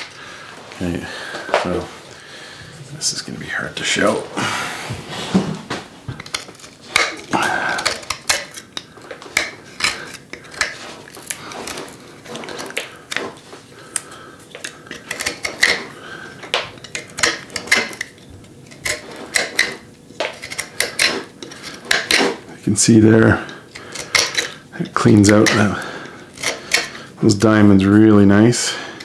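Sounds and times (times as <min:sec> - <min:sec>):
carving blade scraping wood: 0:06.2 - 0:13.4, 0:14.6 - 0:15.9, 0:16.8 - 0:22.4, 0:23.5 - 0:27.0.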